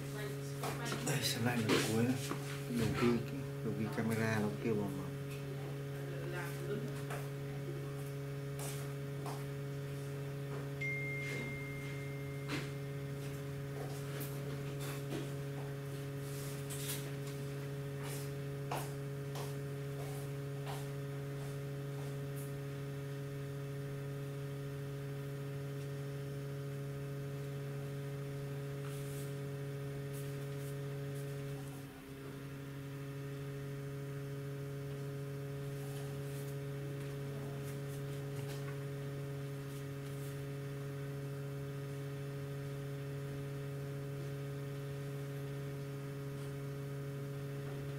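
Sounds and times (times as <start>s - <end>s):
low electrical hum: 0.0s - 47.9s
high steady tone: 10.8s - 13.3s.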